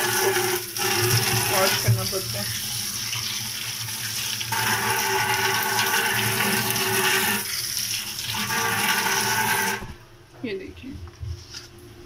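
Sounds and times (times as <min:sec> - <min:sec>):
tap water splashing into steel sink: 0:00.8 - 0:03.4.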